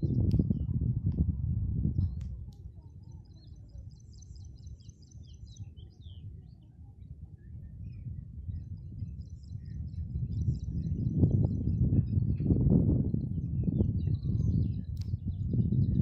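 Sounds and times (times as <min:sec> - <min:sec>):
low rumbling noise: 0:00.0 - 0:03.1
small birds chirping: 0:02.0 - 0:16.0.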